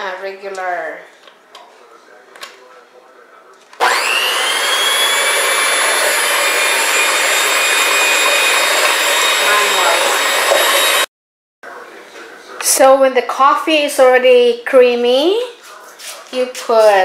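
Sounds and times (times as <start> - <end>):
electric mixer motor whine: 3.8 - 11.1.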